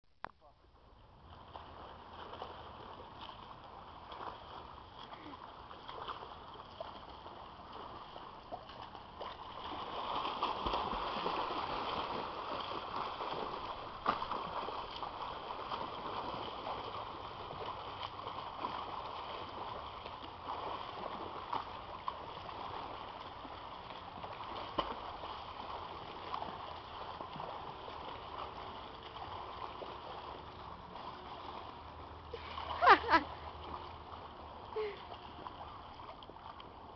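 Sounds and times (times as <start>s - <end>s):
swimmer splashing water: 1.0s - 36.9s
sharp water slaps: 8.6s - 22.7s, 24.3s - 27.6s.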